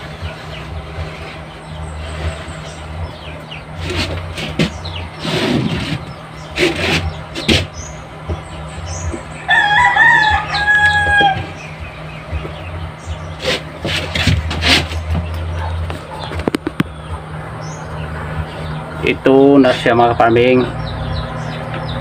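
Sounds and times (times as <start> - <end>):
steady low hum: 0.0 - 22.0
rooster crowing: 9.4 - 11.8
wood and trays knocking: 13.8 - 17.0.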